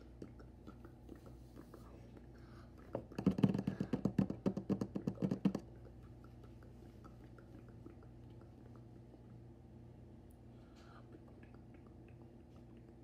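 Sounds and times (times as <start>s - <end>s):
rapid tapping close to microphone: 2.9s - 8.1s.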